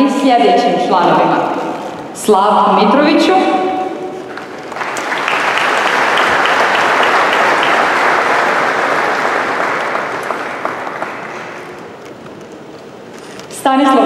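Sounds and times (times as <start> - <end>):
audience applauding: 4.2 - 12.1.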